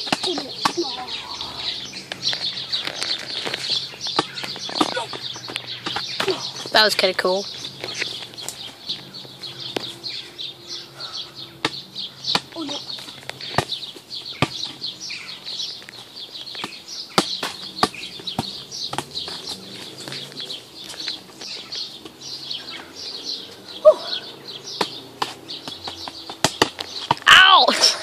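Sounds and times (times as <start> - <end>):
high-pitched birdsong: 0.0 - 28.0
football being kicked: 14.4 - 14.8, 16.6 - 19.4, 24.8 - 27.3.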